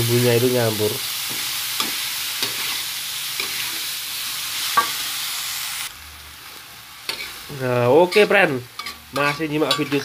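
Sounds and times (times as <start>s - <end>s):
food sizzling in a wok: 0.0s - 10.0s
metal spatula scraping a pan: 1.2s - 3.9s, 7.0s - 10.0s.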